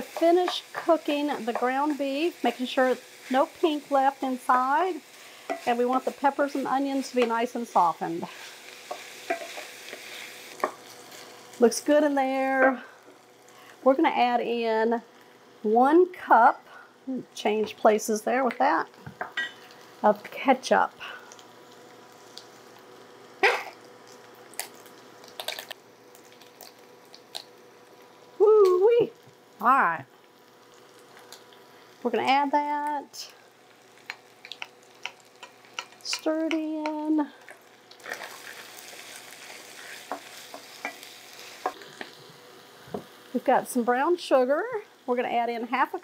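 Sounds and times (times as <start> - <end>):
food sizzling in a pan: 0.0 - 46.0
wooden spoon scraping a pan: 5.1 - 11.3.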